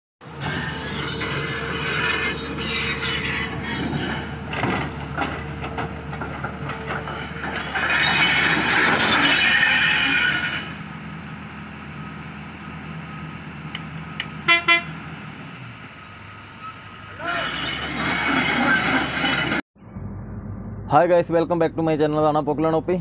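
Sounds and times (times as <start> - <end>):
heavy machinery diesel engines: 0.2 - 23.0
short pitched horn blasts: 14.4 - 15.0.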